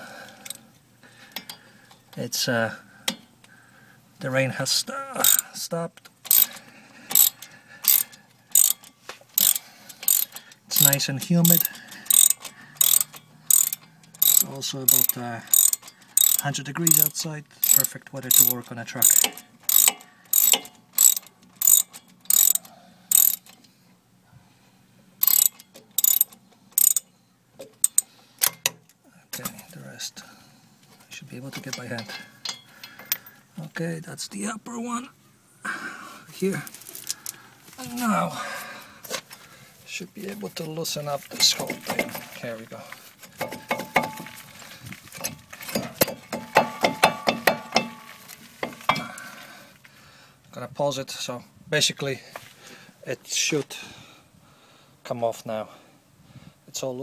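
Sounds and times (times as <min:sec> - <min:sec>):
socket ratchet clicking: 0:06.2 - 0:23.6, 0:25.2 - 0:27.1, 0:27.7 - 0:28.8
metal bar clanking on metal: 0:07.1 - 0:22.6, 0:31.6 - 0:33.3, 0:43.4 - 0:44.4, 0:45.2 - 0:49.2.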